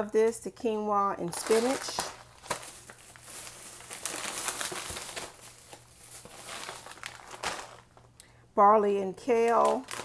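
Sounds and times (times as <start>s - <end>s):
plastic packaging crinkling: 1.2s - 8.2s, 9.4s - 10.0s.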